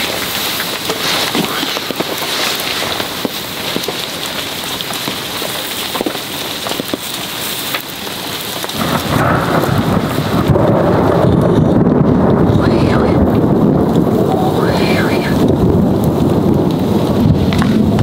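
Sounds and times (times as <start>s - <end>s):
heavy rain: 0.0s - 18.0s
thunder rumble: 8.7s - 18.0s.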